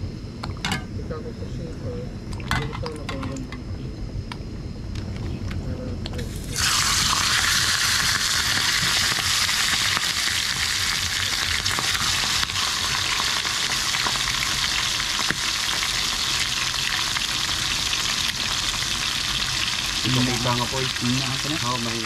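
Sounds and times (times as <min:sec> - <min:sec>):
chicken sizzling in hot oil: 0:06.3 - 0:22.0.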